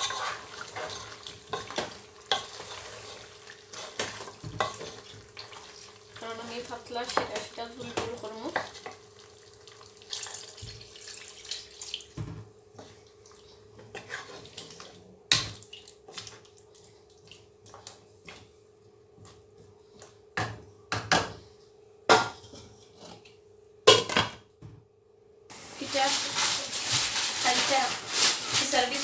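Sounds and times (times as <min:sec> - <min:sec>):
wooden spatula stirring: 0:00.0 - 0:10.0, 0:12.7 - 0:15.0, 0:25.5 - 0:29.0
water pouring into pot: 0:09.2 - 0:12.2.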